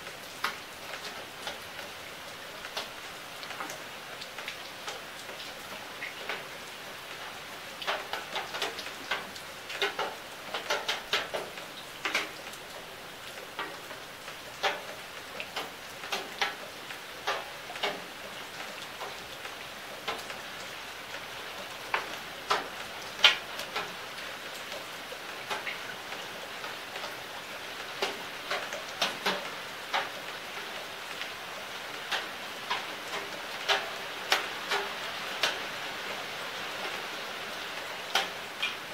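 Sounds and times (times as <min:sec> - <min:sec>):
rain falling on leaves: 0:00.0 - 0:38.9.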